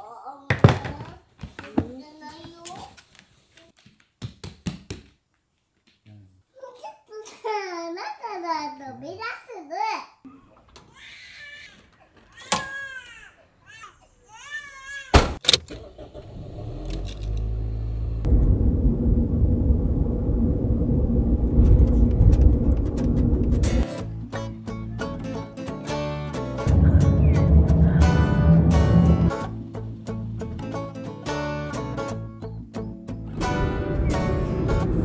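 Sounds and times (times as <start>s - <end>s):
car engine and road noise: 15.4s - 23.8s, 26.6s - 30.4s, 33.3s - 35.0s
plucked guitar notes: 23.6s - 35.0s.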